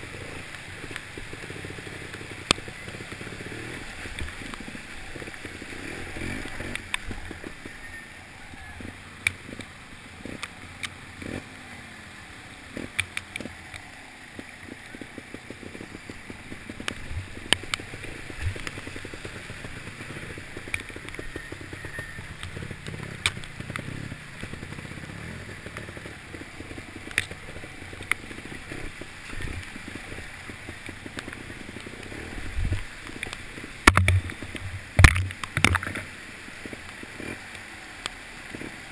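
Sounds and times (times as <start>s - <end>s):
motorcycle engine revving: 0.0s - 7.7s, 8.8s - 37.5s
stream rushing and splashing: 0.0s - 38.9s
motorcycle knocking on rocks: 14.3s - 36.1s.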